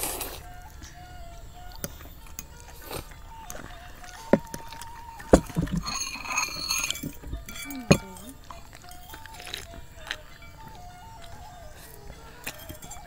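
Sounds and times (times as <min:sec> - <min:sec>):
faint background music: 0:00.0 - 0:13.0
cutlery clinking on ceramic bowls: 0:03.4 - 0:13.0.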